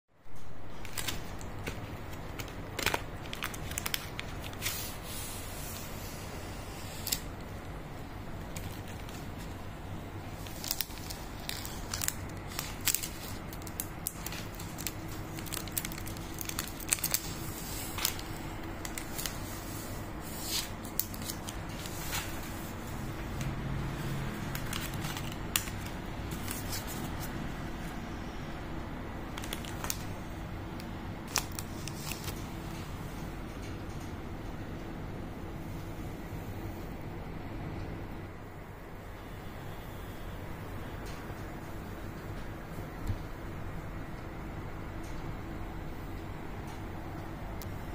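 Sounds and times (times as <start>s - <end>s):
wrapper and foil crinkling: 0.4s - 5.1s, 8.3s - 27.4s, 29.3s - 30.2s, 31.2s - 32.6s.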